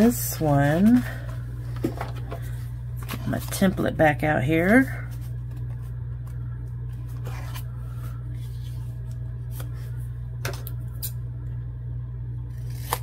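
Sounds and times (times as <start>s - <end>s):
steady low hum: 0.0s - 13.0s
scissors snipping paper: 12.5s - 13.0s.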